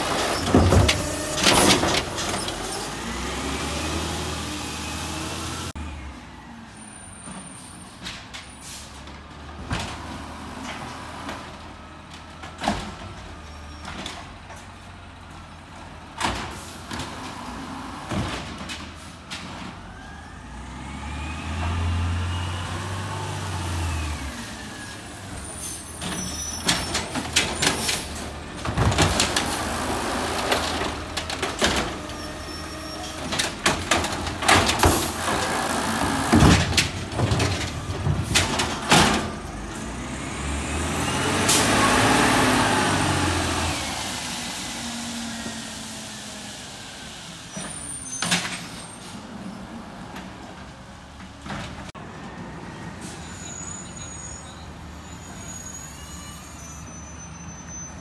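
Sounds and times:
bins clanking and banging: 0.0 - 3.2, 7.2 - 17.4, 18.0 - 19.8, 25.4 - 40.1
diesel engine revving: 0.0 - 6.1, 19.8 - 25.9, 26.6 - 47.5.

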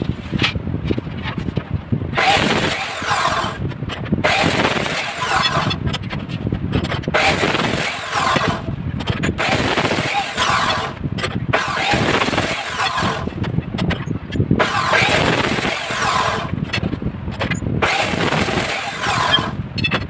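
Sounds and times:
cut-off wheel grinding steel: 2.2 - 13.5, 14.6 - 16.6, 17.5 - 19.9.

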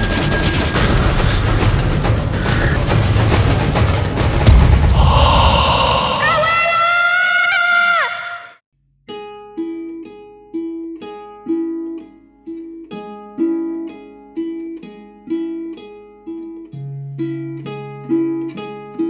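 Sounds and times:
plucked string instrument music: 9.1 - 19.0.

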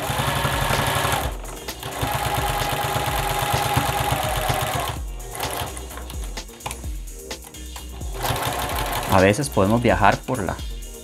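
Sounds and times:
sewing machine stitching: 0.0 - 6.1, 8.1 - 9.7.

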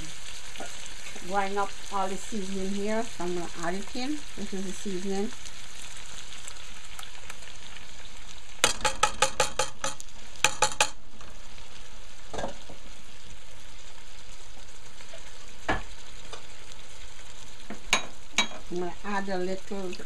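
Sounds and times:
meat sizzling in a pot: 0.0 - 20.0
metal spoon tapping a pot: 8.6 - 11.0, 17.9 - 18.6.

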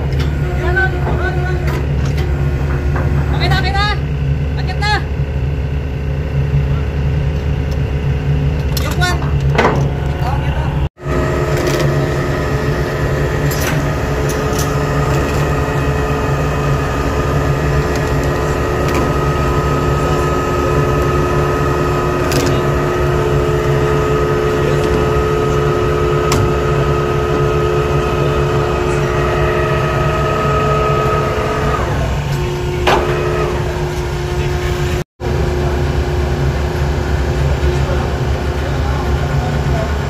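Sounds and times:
winch mechanical hum: 0.0 - 40.0
winch whine: 0.0 - 40.0.

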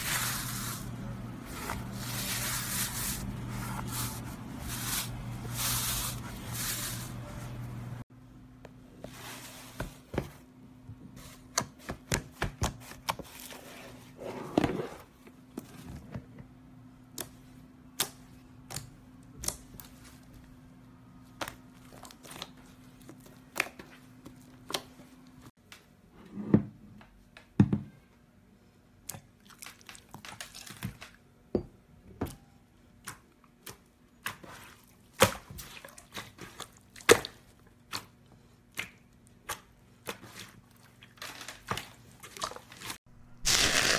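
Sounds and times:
slime squelching: 21.2 - 25.0.

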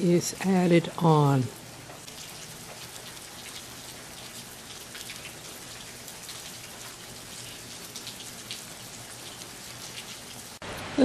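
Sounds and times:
steady rain hiss: 0.0 - 11.0
raindrop ticks: 0.8 - 10.5.

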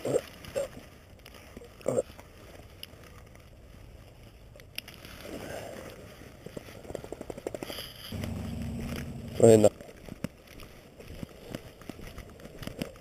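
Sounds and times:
leash and jacket rustling: 8.1 - 13.0.

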